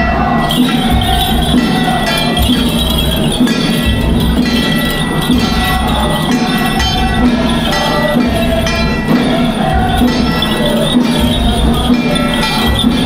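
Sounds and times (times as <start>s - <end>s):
gongs and bells ringing: 0.0s - 13.0s
steady drumbeat: 0.0s - 13.0s.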